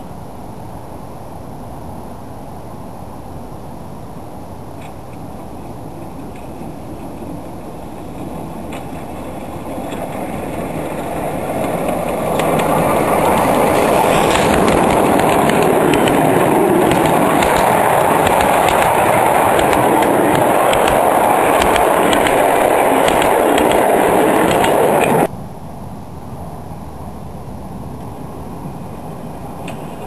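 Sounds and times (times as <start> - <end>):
miniature steam train running past: 4.8 - 25.3
wheels clicking over rail joints: 4.8 - 25.3, 29.6 - 30.0.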